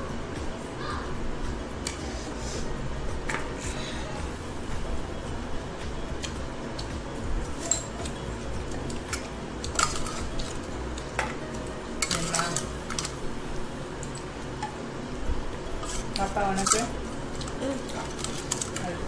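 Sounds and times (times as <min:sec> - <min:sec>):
steel plates and tumblers clinking: 0:07.6 - 0:08.1, 0:08.8 - 0:11.4, 0:12.0 - 0:13.2, 0:15.8 - 0:19.0.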